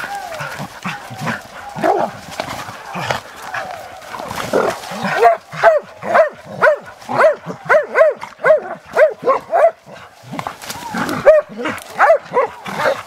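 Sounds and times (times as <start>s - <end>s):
dog barking: 5.0s - 10.1s, 11.2s - 13.0s.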